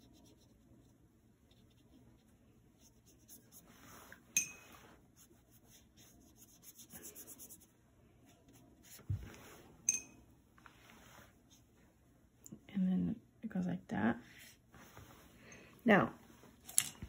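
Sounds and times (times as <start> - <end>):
paintbrush rubbing on paper: 0.0 - 9.7.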